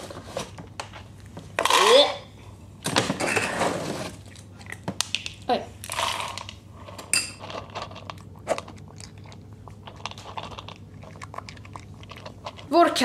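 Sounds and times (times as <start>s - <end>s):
cat crunching dry kibble: 4.2s - 5.4s, 6.0s - 13.0s.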